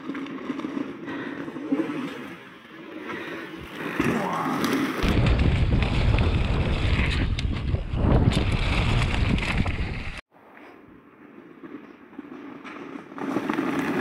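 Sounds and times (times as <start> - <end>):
bike rattling over ground: 0.0 - 10.2, 11.3 - 14.0
wind buffeting microphone: 5.0 - 10.2.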